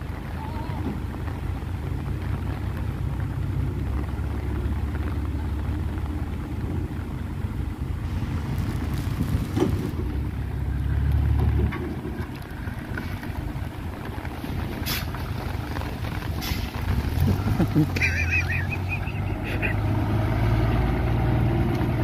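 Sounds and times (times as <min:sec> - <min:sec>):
diesel truck engine rumbling: 0:00.0 - 0:22.0.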